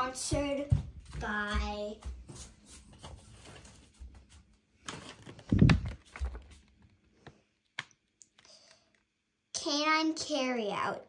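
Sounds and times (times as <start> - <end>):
plastic bag rustling: 4.8 - 7.1.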